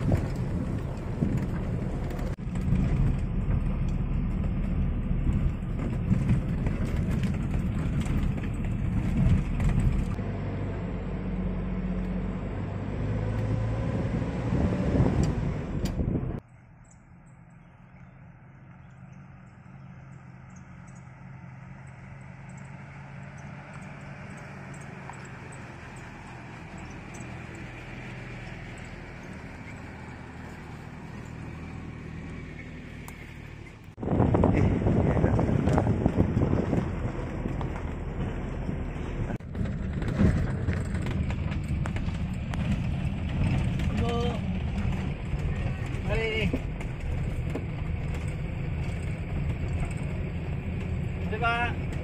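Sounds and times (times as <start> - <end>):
vehicle body knocks and rattles: 0.0 - 10.2, 39.4 - 50.2
off-road vehicle engines humming: 0.0 - 52.0.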